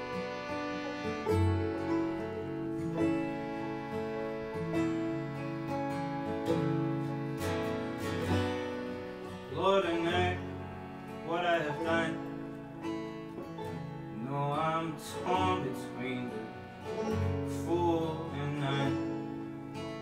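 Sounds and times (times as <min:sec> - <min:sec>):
keyboard: 0:00.0 - 0:20.0
strummed acoustic guitar: 0:00.0 - 0:20.0
man singing: 0:09.5 - 0:12.4, 0:14.1 - 0:19.4.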